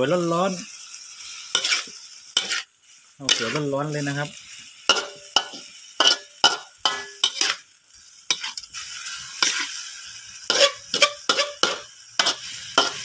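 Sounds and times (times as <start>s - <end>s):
food sizzling: 0.0s - 13.0s
metal ladle scraping a wok: 1.2s - 2.7s, 3.3s - 3.7s, 4.9s - 7.7s, 8.3s - 13.0s.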